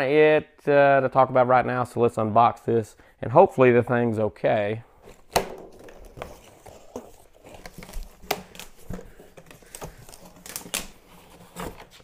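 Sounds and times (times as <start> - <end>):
foam insert rustling: 5.0 - 12.0
knife cutting packing tape: 5.1 - 12.0.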